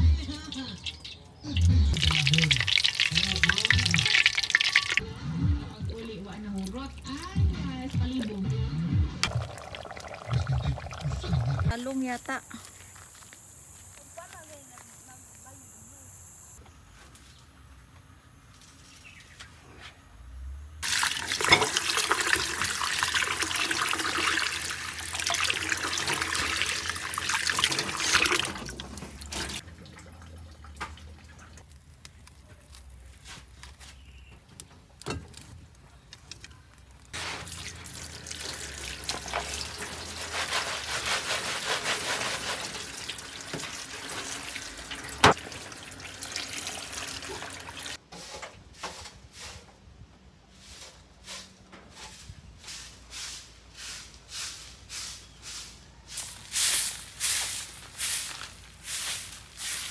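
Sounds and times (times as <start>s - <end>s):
water pouring into plastic basin: 1.9s - 5.0s, 9.2s - 11.7s, 20.8s - 32.0s, 37.2s - 48.0s.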